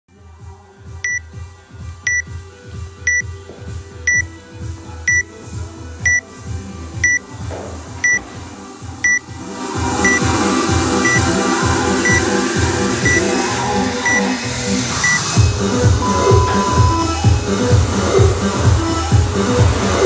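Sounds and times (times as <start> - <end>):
background music with steady beat: 0.1 - 20.0
timer beeping: 2.1 - 2.3, 4.1 - 4.3, 5.1 - 5.3, 7.0 - 7.2, 9.0 - 9.4, 10.0 - 10.3, 11.0 - 11.3, 12.0 - 12.3, 13.0 - 13.3, 14.0 - 14.3, 15.0 - 15.3, 16.0 - 17.2.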